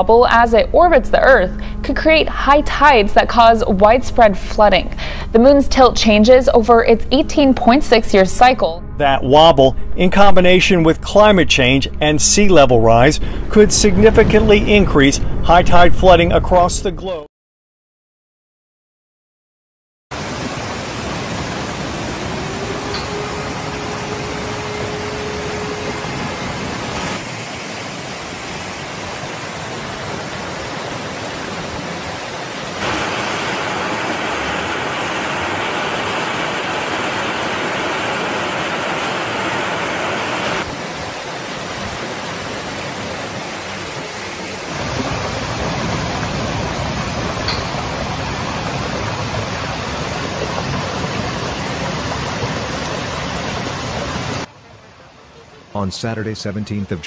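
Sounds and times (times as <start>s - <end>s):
rushing floodwater roar: 20.1s - 57.0s.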